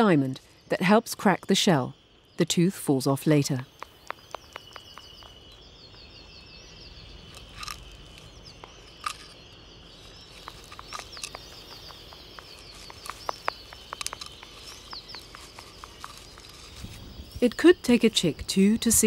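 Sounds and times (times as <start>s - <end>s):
eggshell clicks and cracks: 7.3s - 9.4s, 10.4s - 16.8s.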